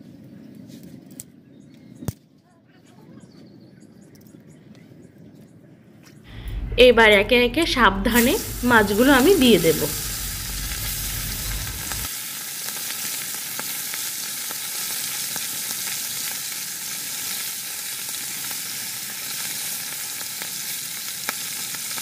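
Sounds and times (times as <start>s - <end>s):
fish sizzling in hot oil: 8.0s - 22.0s
small oil crackles: 8.1s - 22.0s.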